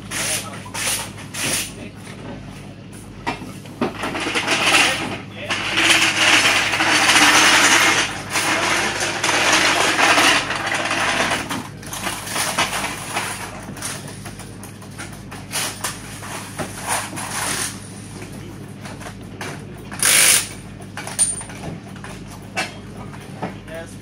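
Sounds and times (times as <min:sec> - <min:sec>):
steady low hum: 0:00.0 - 0:24.0
tools clinking and knocking: 0:21.0 - 0:22.8.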